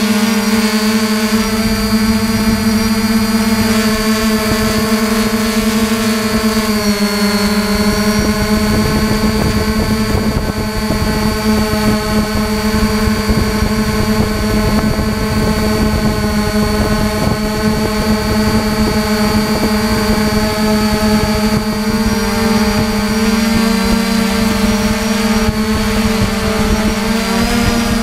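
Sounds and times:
drone propellers humming: 0:00.0 - 0:28.0
wind buffeting rumble: 0:00.4 - 0:28.0.

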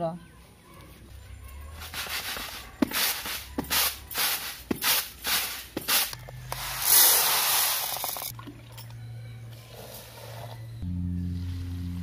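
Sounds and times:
rice swishing on bamboo tray: 0:01.8 - 0:08.0.

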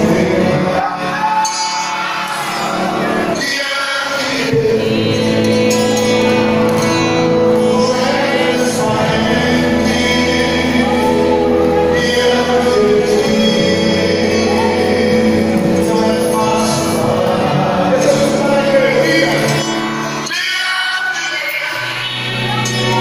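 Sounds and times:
live gospel music with singer: 0:00.0 - 0:23.0.

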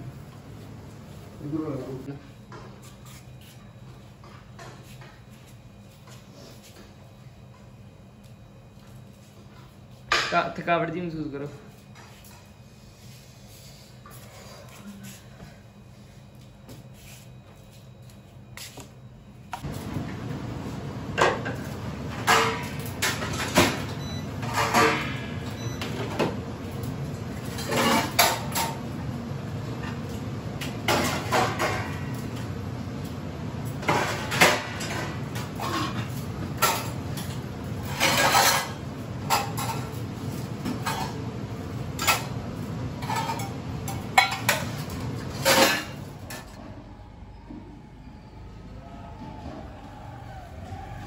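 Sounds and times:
steel dishes clattering: 0:37.8 - 0:39.8.

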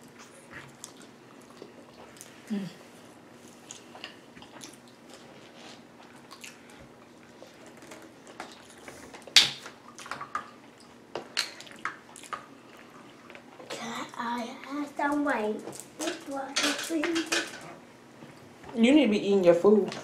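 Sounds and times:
quiet chewing: 0:00.0 - 0:02.5, 0:03.4 - 0:13.7.

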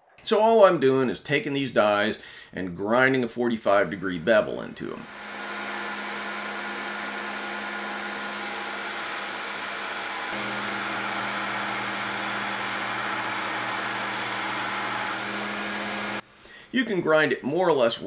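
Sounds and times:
belt grinder grinding steel: 0:05.0 - 0:16.2.

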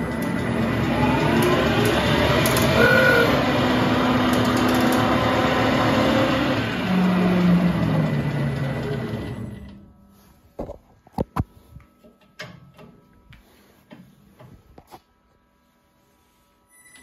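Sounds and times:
metal lathe whirring: 0:00.2 - 0:08.6.

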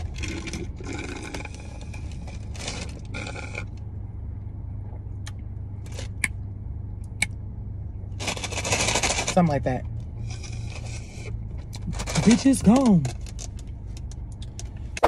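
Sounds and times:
car rumble: 0:00.0 - 0:15.0
ice rattling in plastic cup: 0:08.2 - 0:09.4.

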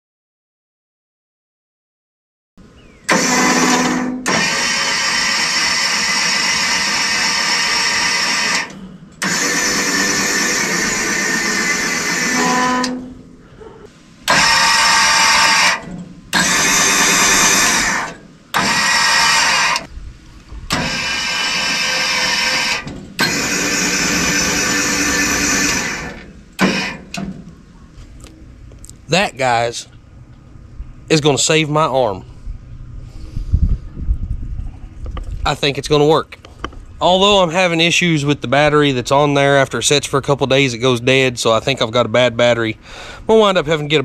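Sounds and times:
electric motor running: 0:03.1 - 0:13.0, 0:14.3 - 0:19.9, 0:20.7 - 0:27.0.

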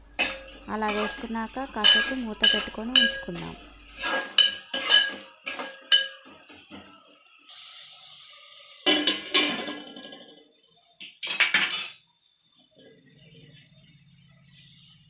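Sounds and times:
spoon scraping metal pot: 0:00.0 - 0:06.3
onions frying: 0:00.0 - 0:10.1
metal plate clattering on pot: 0:00.2 - 0:01.2, 0:01.8 - 0:03.4, 0:04.0 - 0:06.4, 0:08.8 - 0:10.3, 0:11.2 - 0:12.0.

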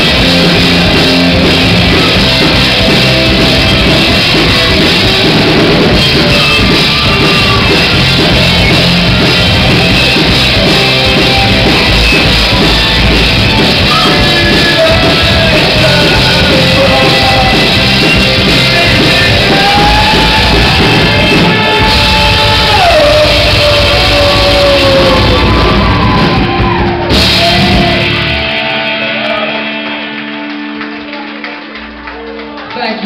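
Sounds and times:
live rock band playing: 0:00.0 - 0:32.7
singer shouting and singing: 0:03.3 - 0:28.3.

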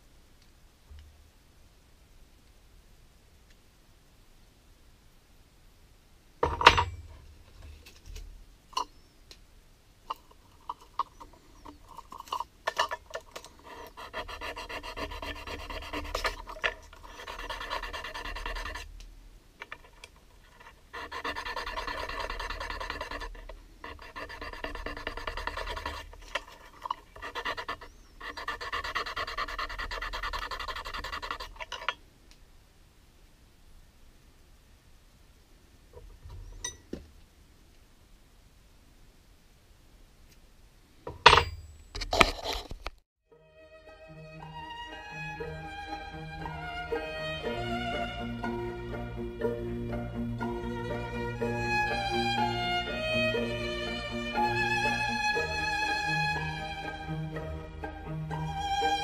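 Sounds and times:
rasping and scraping on metal: 0:10.1 - 0:19.0, 0:19.6 - 0:32.0, 0:41.2 - 0:42.8.

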